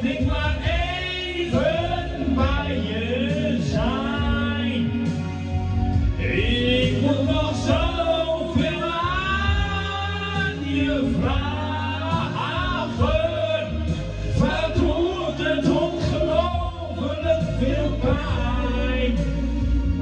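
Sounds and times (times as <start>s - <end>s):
instrumental backing with bass: 0.0s - 20.0s
man singing into microphone: 0.0s - 20.0s.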